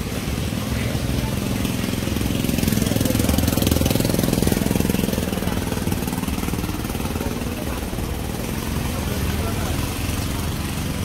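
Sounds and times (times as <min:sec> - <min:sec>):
engine running with rapid pulse: 0:00.0 - 0:11.0.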